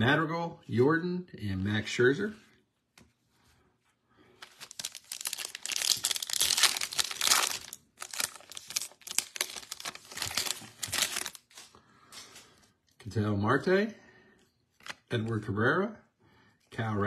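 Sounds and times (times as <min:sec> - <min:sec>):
foil wrapper crinkling and tearing: 0:04.4 - 0:11.8.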